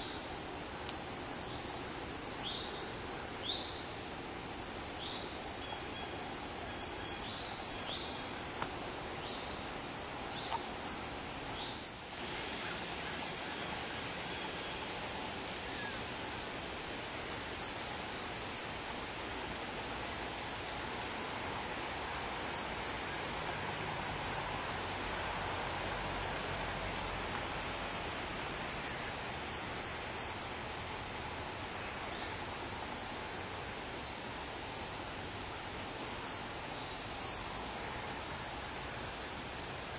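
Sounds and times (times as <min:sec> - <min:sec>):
faint insect chirp: 0:00.0 - 0:39.9
high-pitched insect chorus: 0:00.0 - 0:39.9.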